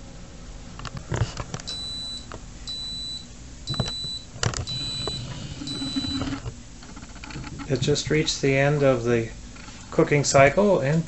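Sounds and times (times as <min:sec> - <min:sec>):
toaster oven beeping: 0:01.7 - 0:07.2.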